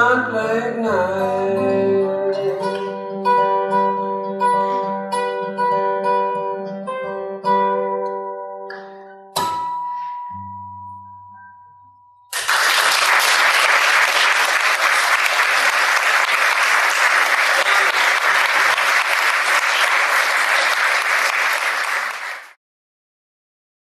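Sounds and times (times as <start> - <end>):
acoustic guitar chord ringing: 0.0 - 12.3
audience applause: 12.3 - 22.6.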